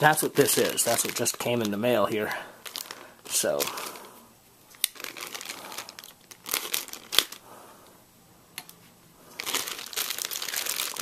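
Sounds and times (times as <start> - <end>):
plastic bag crinkling: 0.0 - 7.6, 9.2 - 11.0.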